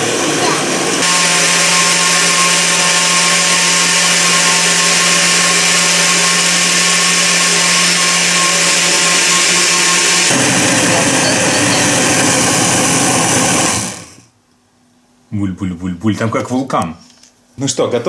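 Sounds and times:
blender running: 0.0s - 14.3s.

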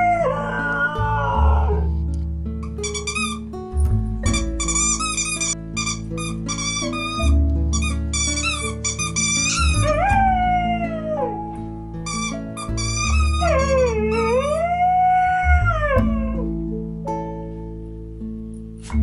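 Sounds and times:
dog howling: 0.0s - 1.9s, 9.6s - 11.5s, 13.1s - 16.5s
background music: 0.0s - 19.0s.

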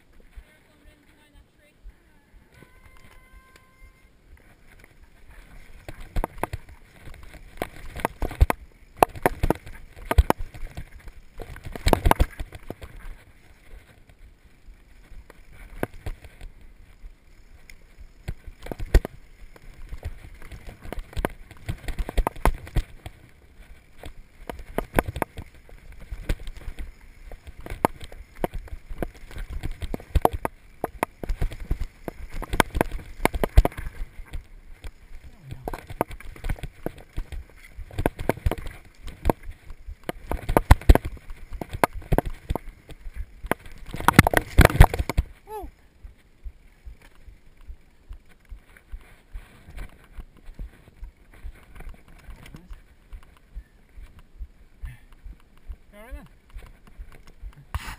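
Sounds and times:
bike tyres on loose dirt: 0.0s - 57.9s
bike knocks and rattles: 4.6s - 14.3s, 14.9s - 45.5s.

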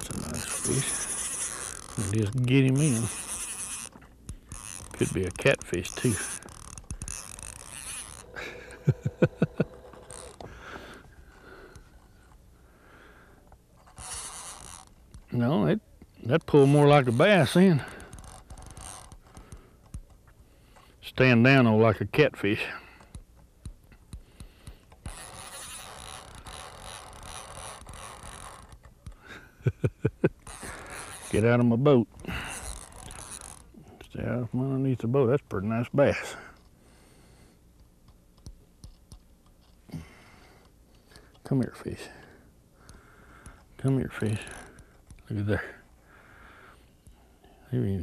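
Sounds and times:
fishing reel drag buzzing: 0.0s - 15.6s, 16.2s - 20.9s, 24.3s - 29.4s, 30.4s - 34.0s, 40.1s - 46.8s.

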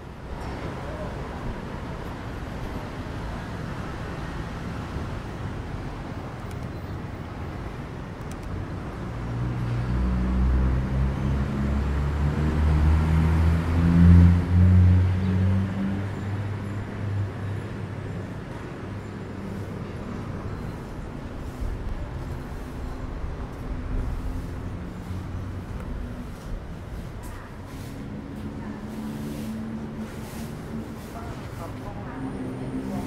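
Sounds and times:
city traffic noise: 0.0s - 33.0s
vehicle engine hum passing: 8.5s - 33.0s.

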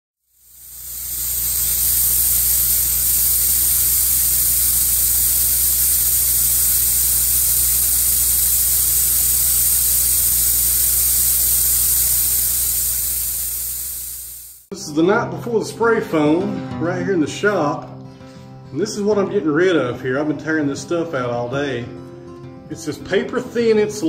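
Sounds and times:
spray foam gun hissing: 0.2s - 14.7s.

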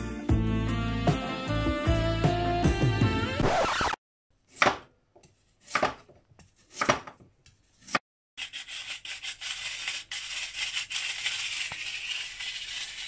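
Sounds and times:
knife cutting carrot on board: 4.5s - 8.0s
rotary grater scraping: 5.2s - 13.0s.

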